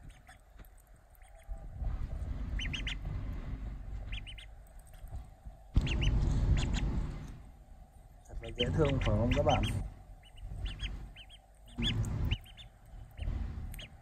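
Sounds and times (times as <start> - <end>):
duckling peeping: 0.0 - 7.4, 8.3 - 14.0
low rumbling noise: 0.7 - 14.0.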